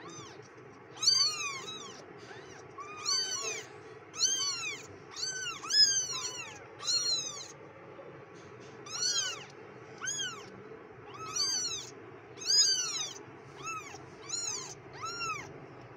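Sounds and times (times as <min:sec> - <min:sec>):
kittens mewing: 0:00.0 - 0:07.6, 0:08.7 - 0:15.6.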